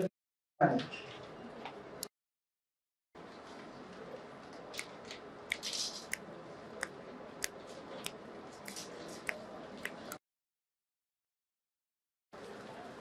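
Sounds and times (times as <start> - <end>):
sharp paper clicks: 4.8 - 6.2.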